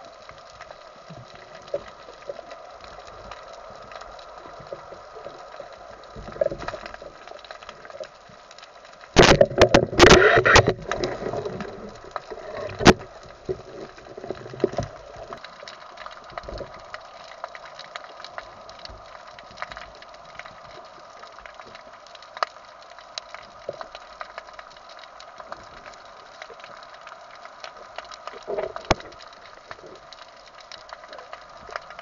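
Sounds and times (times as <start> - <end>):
snapping shrimp clicks underwater: 9.0 - 32.0.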